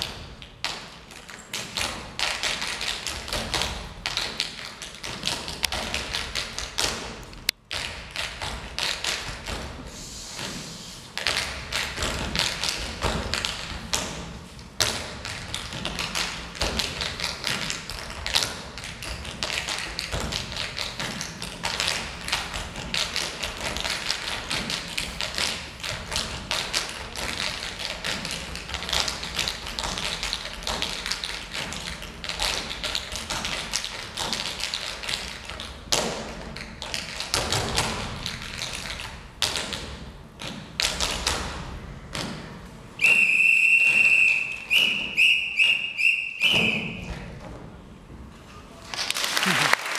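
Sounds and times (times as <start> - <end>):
tap shoes clicking and stamping: 0.0 - 9.8, 11.2 - 41.6.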